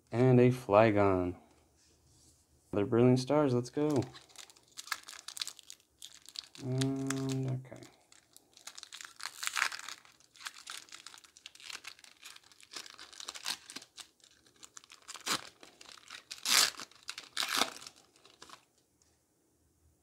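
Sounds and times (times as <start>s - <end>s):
foil wrapper crinkling and tearing: 3.8s - 18.7s.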